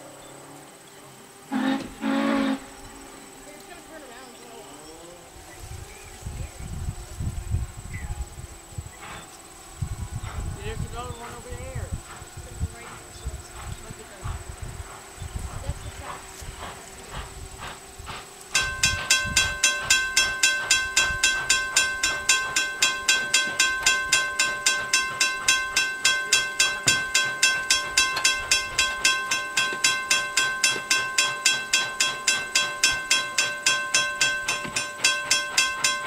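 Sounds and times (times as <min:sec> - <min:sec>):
steam locomotive bell ringing: 0:16.0 - 0:17.8, 0:18.5 - 0:36.0.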